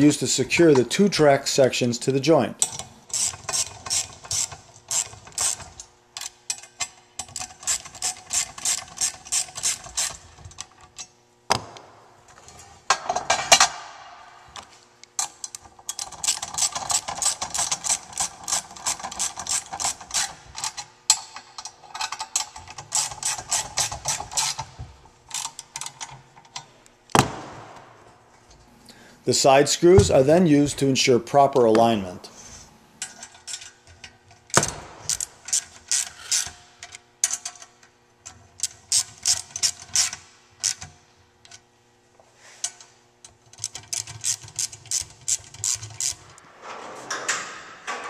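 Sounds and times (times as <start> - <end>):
ratchet wrench clicking: 15.2 - 24.7, 34.5 - 37.7, 38.6 - 40.9.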